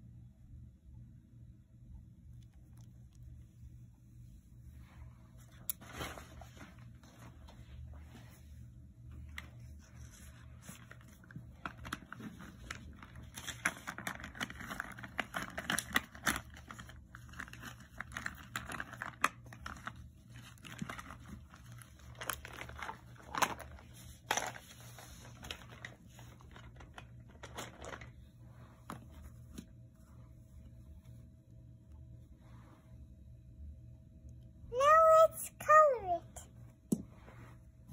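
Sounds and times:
paper rustling and crinkling: 5.4 - 7.7, 9.3 - 29.7.

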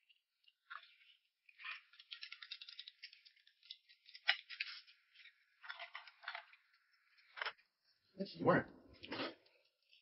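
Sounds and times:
rapid small clicks and rattles: 0.0 - 7.7.

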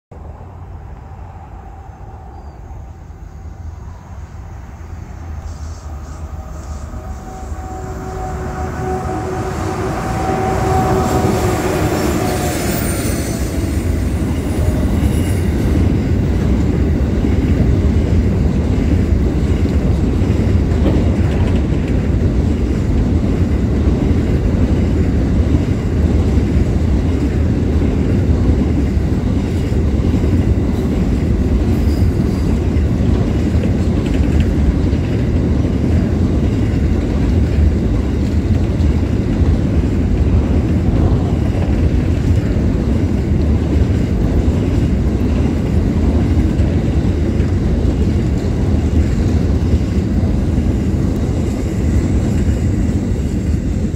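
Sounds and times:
freight train passing: 0.1 - 53.9
wheels rumbling on rail: 0.1 - 53.9.

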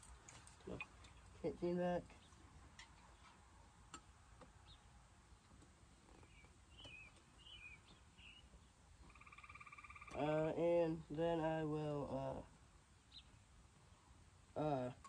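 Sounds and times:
bird chirps: 6.1 - 10.2, 13.1 - 13.4.

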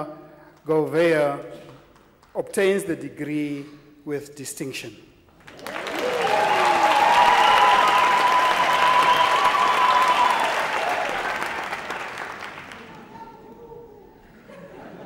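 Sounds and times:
audience applauding: 5.4 - 13.4
audience cheering: 5.5 - 13.0.

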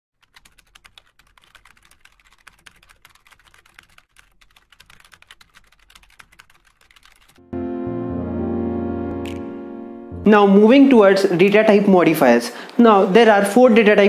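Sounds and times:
typing on computer keyboard: 0.2 - 7.4.

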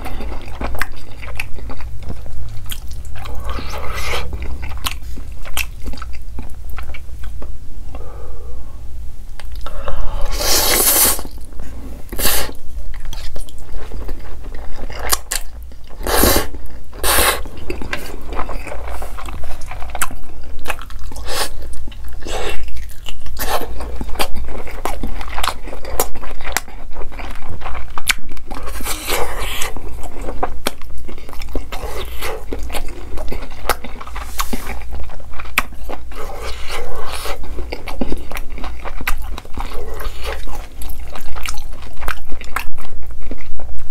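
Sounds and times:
wet chewing: 0.0 - 7.5, 12.1 - 43.9
slurping noodles: 10.2 - 11.3, 16.0 - 18.1.

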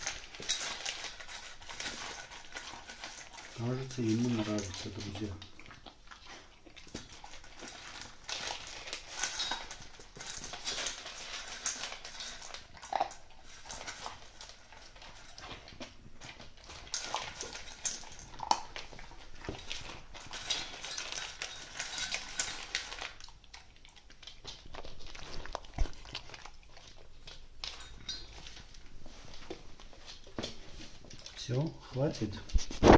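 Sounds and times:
puppy crunching dry kibble: 0.0 - 32.9.

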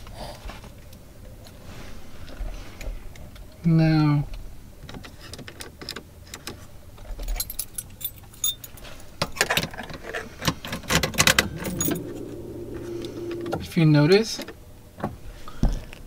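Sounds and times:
faint steady hum: 11.2 - 14.2.

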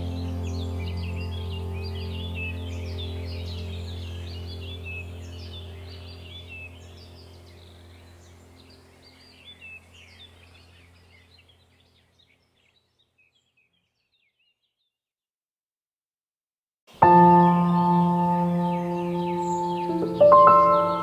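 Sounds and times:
low steady droning tone: 0.0 - 11.7
birds chirping and trilling: 0.0 - 15.0, 17.0 - 21.0.

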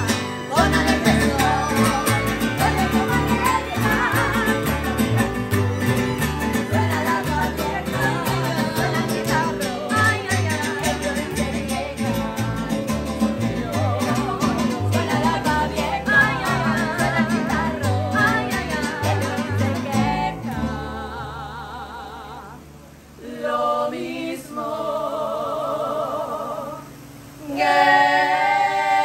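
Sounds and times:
strummed acoustic guitar: 0.0 - 21.4
plucked bass line: 0.0 - 21.9
women singing: 0.0 - 29.0.

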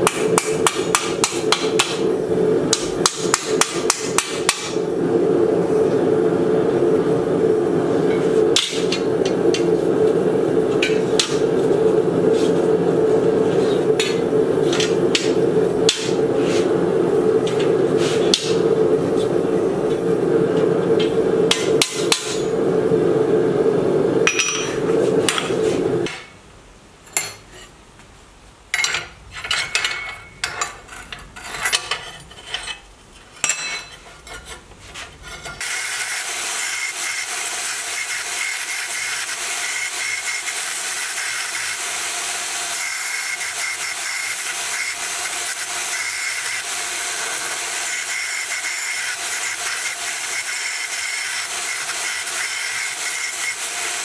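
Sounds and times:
belt sander grinding steel: 35.1 - 54.0.

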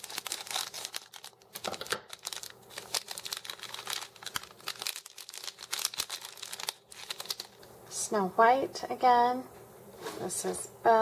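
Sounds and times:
plastic pouch crinkling: 0.0 - 7.7.

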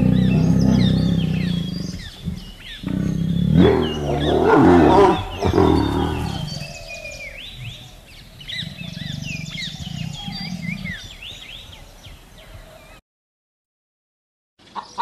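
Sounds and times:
tiger roaring: 0.0 - 11.7
tiger growling: 0.0 - 12.2
songbirds chirping: 0.0 - 13.0, 14.6 - 15.0.

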